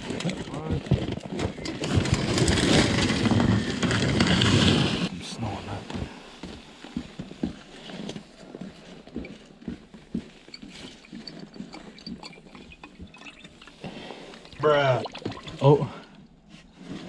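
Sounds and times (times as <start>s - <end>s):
liquid pouring: 11.7s - 16.0s.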